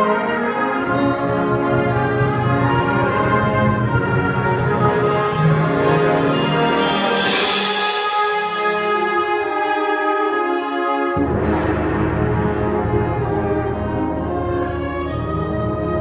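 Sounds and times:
concert band playing chords: 0.0s - 9.5s.

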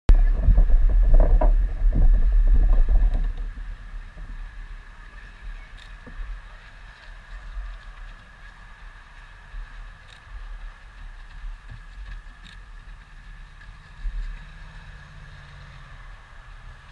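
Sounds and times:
low rumbling wind noise: 0.1s - 16.9s
light ticks: 5.7s - 14.5s.

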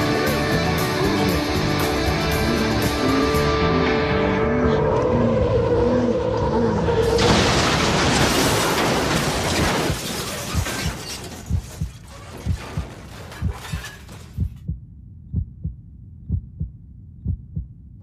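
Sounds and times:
car crash and glass shattering: 7.0s - 14.4s
heartbeat thumps: 11.5s - 13.8s, 14.4s - 18.0s.

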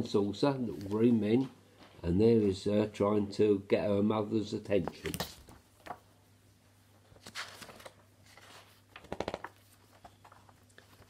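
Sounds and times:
paper rustling: 4.8s - 6.1s, 7.0s - 11.0s
book page flicking: 4.9s - 6.0s, 7.2s - 11.0s.

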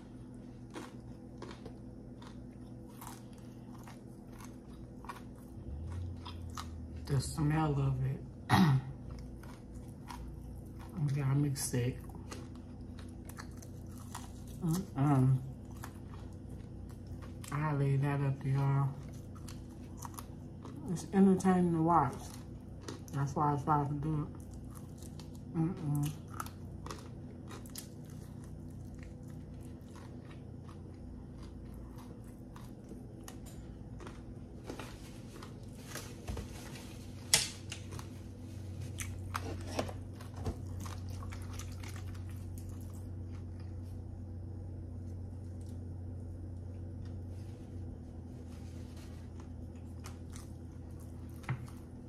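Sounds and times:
low steady hum: 0.0s - 52.0s
close chewing with wet mouth clicks: 0.5s - 6.8s, 22.2s - 23.2s, 24.4s - 33.2s, 40.5s - 43.4s.

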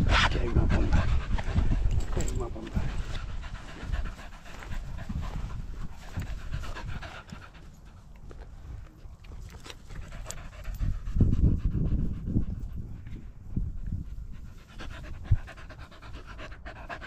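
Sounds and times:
dog panting: 0.0s - 17.0s.

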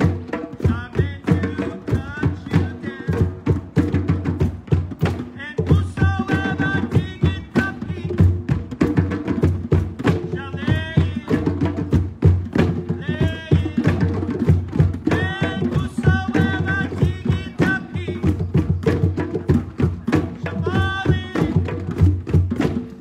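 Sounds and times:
hand drums playing a groove: 0.0s - 23.0s.

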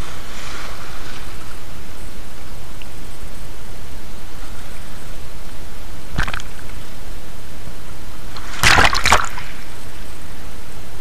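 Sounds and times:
water splashing: 6.1s - 6.8s, 8.3s - 9.8s.

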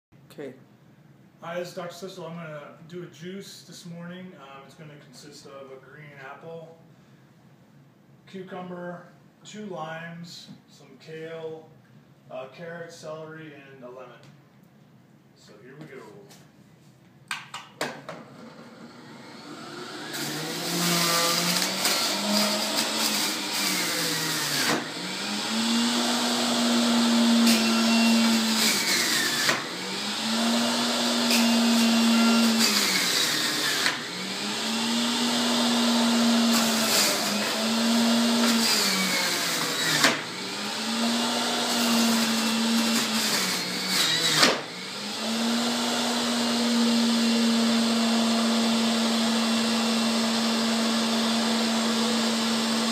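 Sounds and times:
juicer motor whine: 18.2s - 52.9s.

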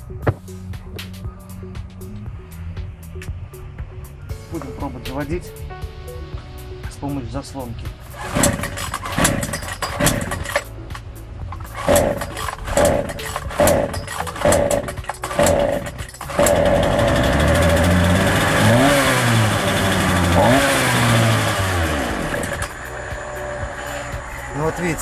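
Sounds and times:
chainsaw engine running unevenly: 8.2s - 10.7s, 11.6s - 25.0s
starter cord pulls: 8.2s - 10.7s, 11.5s - 22.8s.

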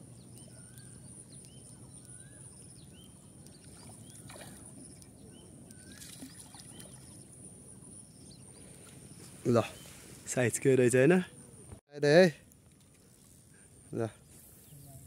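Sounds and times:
low outdoor background noise: 0.0s - 15.0s
faint rustles: 8.4s - 10.5s.

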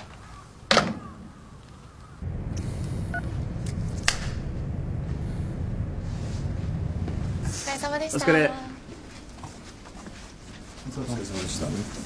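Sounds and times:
crow cawing: 0.2s - 2.2s
low outdoor rumble: 1.9s - 10.5s.

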